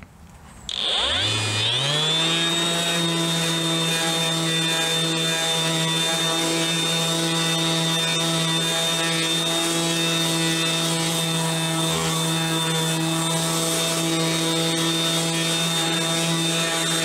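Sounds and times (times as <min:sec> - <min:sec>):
orbital sander running: 0:00.7 - 0:17.0.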